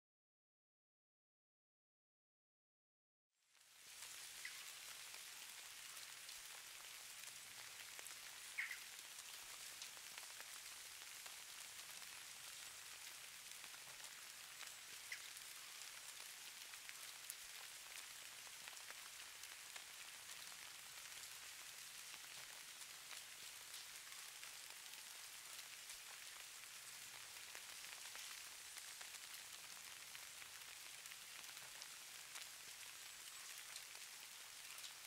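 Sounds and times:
light rain hiss: 3.4s - 35.0s.

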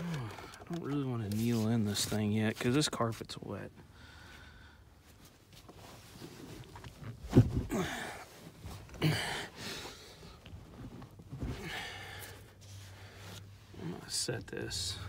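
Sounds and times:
bumps and rustling in car: 5.0s - 15.0s
man grunting: 9.0s - 9.5s.

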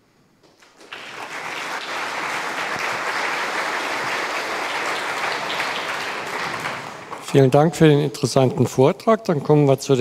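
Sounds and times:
audience applauding: 0.5s - 7.5s.

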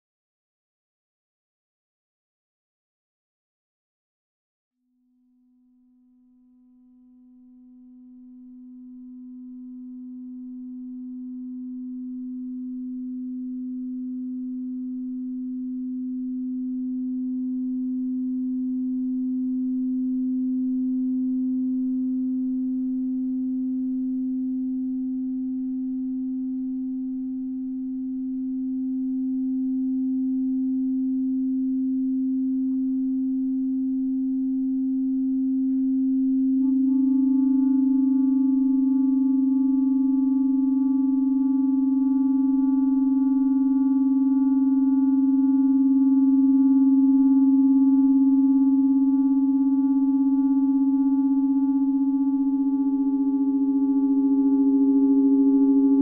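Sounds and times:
electronic sine wave tone: 4.8s - 56.0s
clarinet long tones: 31.9s - 56.0s
higher steady tone: 32.3s - 56.0s.

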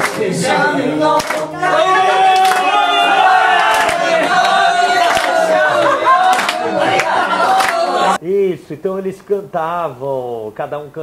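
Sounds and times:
people clapping: 0.0s - 8.2s
people calling out: 1.6s - 8.2s.

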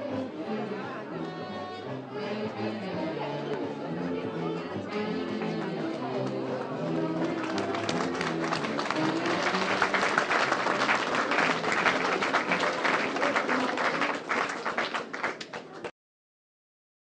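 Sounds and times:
music playing: 0.0s - 13.8s
crowd applauding: 5.2s - 15.9s.

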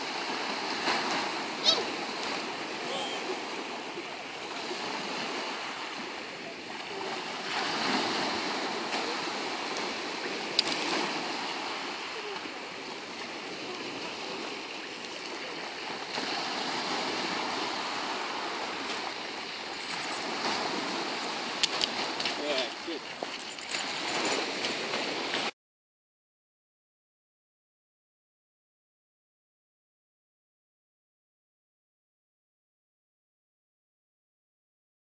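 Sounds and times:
small waves on shingle beach: 0.0s - 25.5s.

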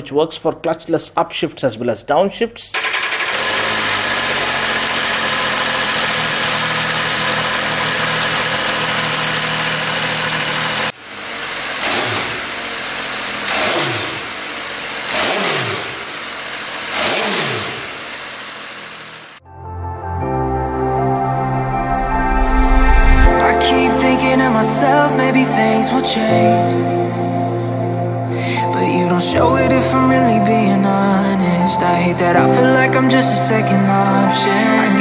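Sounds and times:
motorcycle engine revving: 2.8s - 19.4s
motorcycle engine running: 2.8s - 19.4s.

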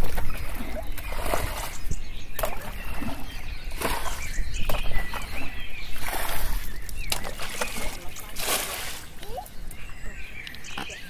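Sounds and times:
water splashing in ditch: 0.0s - 11.0s.

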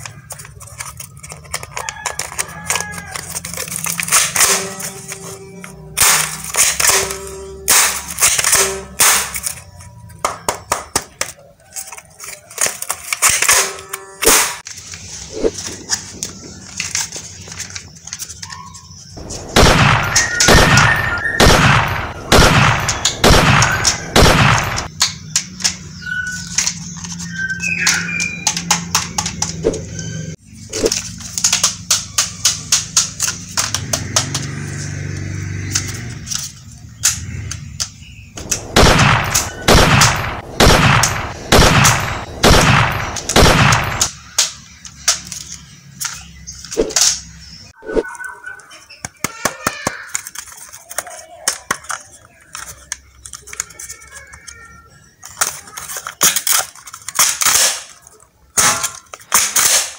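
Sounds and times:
toy pistols firing: 6.0s - 9.7s, 19.2s - 25.7s, 38.4s - 44.6s, 55.4s - 59.9s.

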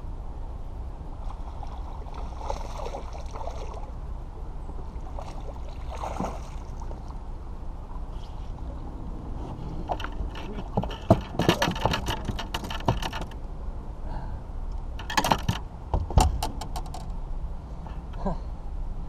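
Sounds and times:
low wind rumble: 0.0s - 19.0s
water lapping against boat: 1.2s - 4.0s, 4.7s - 13.4s.

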